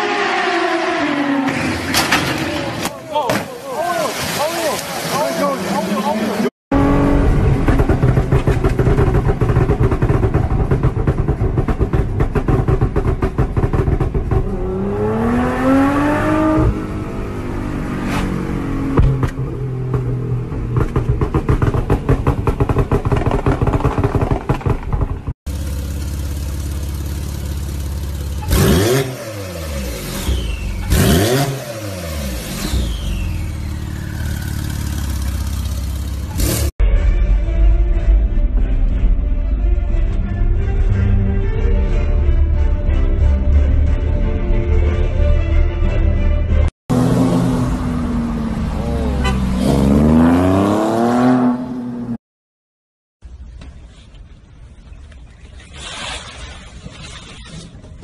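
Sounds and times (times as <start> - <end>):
vehicles passing fast: 3.8 - 36.8, 46.9 - 52.2
car engine revving: 5.7 - 23.6, 24.9 - 36.8, 46.9 - 52.2.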